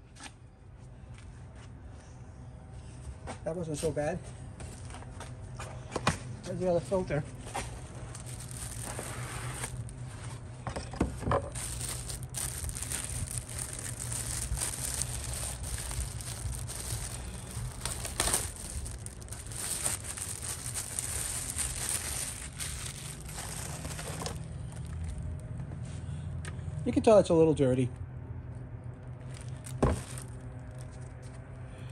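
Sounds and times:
steady low hum: 0.0 - 31.9
plastic wrapping crinkling: 7.7 - 10.0, 11.4 - 25.4, 29.2 - 31.4.

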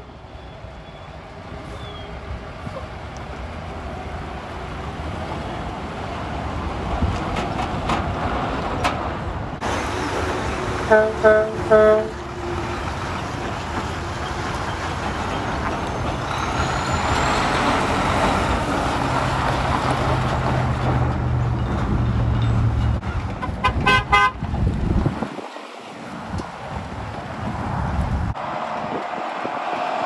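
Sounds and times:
diesel truck engine pulling away: 9.4 - 23.1
short horn toots: 10.9 - 12.2.

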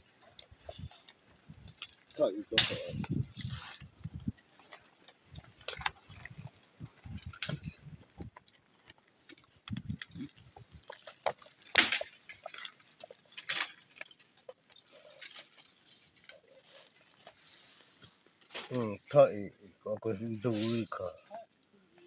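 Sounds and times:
dry leaves and twigs crackling: 0.0 - 22.0
low thuds on ground: 2.6 - 4.4.

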